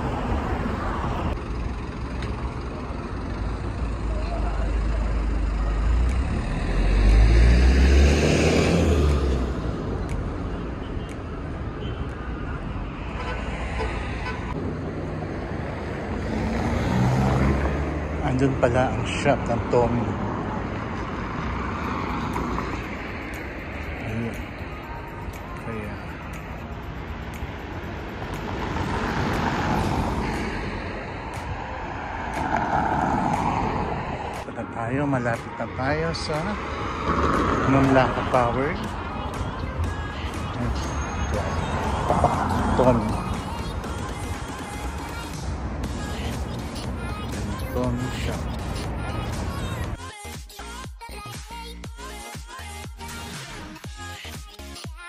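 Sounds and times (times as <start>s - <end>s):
cars going by: 0.0s - 54.8s
traffic noise: 0.0s - 55.0s
car driving past: 5.3s - 10.0s, 12.9s - 18.3s, 28.2s - 34.4s.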